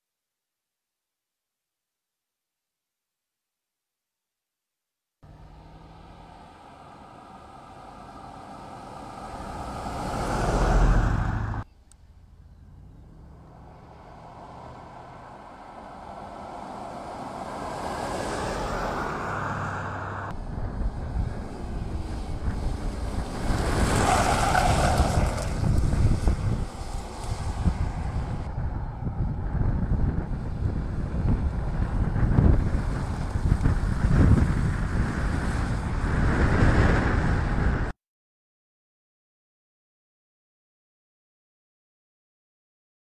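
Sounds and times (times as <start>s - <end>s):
car driving past: 5.2s - 32.0s
tyres rumbling: 5.2s - 36.2s
wind on microphone: 20.3s - 37.9s.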